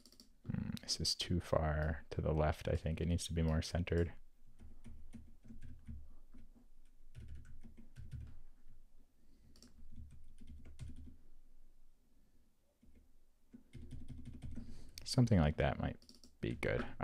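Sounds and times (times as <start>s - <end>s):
computer keyboard typing: 0.0s - 0.3s, 3.4s - 8.8s, 9.5s - 11.2s, 12.8s - 14.7s, 16.0s - 16.4s.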